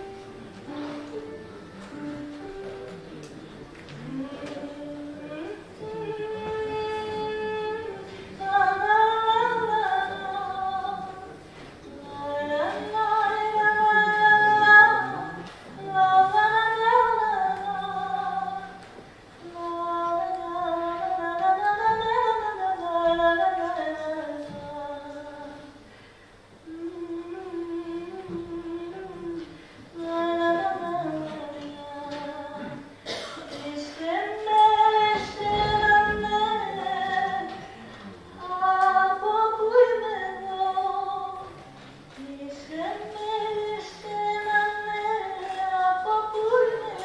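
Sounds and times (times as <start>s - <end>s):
woman singing slow melody: 0.0s - 25.8s, 26.6s - 47.0s.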